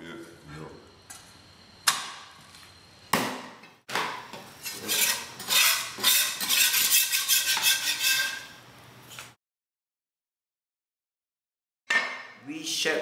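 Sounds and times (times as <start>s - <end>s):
blade scraping wooden block: 4.6s - 8.5s.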